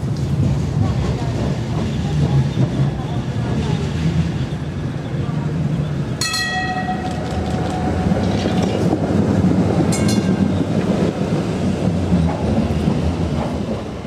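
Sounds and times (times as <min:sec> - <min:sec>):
tram wheels rumbling on rails: 0:00.0 - 0:14.0
brief high tone: 0:06.2 - 0:07.4.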